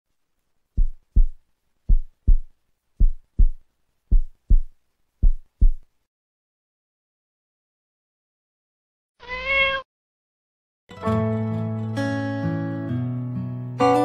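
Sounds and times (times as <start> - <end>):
heartbeat thumps: 0.8 - 5.9.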